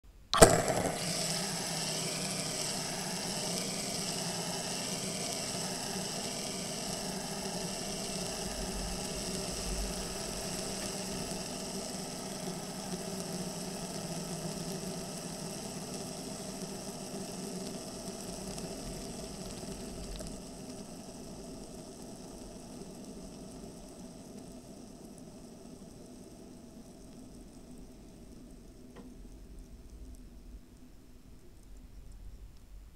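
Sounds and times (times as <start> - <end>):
fidget spinner flick click: 0.3 - 20.4
fidget spinner whirring: 0.3 - 24.6.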